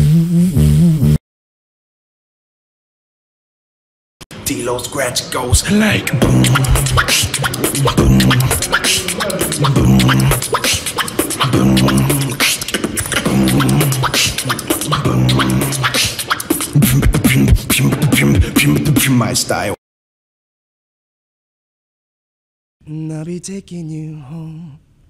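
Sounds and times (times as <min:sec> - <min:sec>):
low vocal bass tone: 0:00.0 - 0:01.2, 0:06.0 - 0:10.4, 0:11.4 - 0:12.4, 0:13.2 - 0:16.0, 0:16.8 - 0:19.4
beatboxing clicks and snaps: 0:06.1 - 0:19.2.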